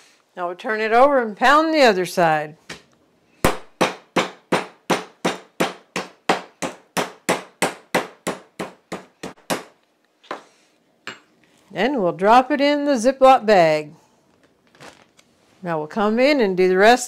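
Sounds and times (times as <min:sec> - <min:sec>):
meat mallet pounding meat: 0:03.4 - 0:09.8.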